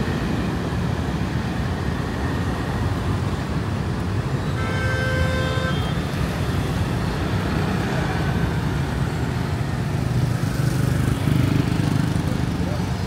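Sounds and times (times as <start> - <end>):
city road traffic rumble: 0.0 - 13.0.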